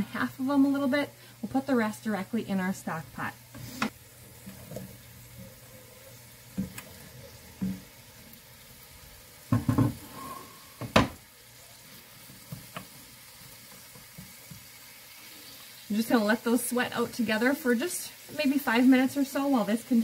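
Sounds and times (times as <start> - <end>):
food sizzling in a skillet: 0.0 - 20.0
wooden utensils knocking pan: 7.5 - 8.0, 9.5 - 10.1, 10.8 - 11.2.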